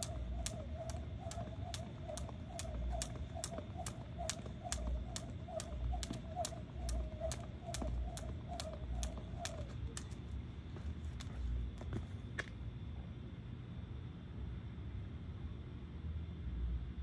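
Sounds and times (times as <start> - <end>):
jump rope slapping the ground: 0.0 - 10.3.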